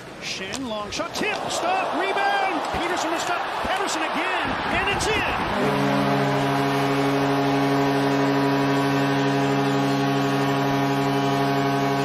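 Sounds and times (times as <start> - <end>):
goal horn: 5.5 - 12.0.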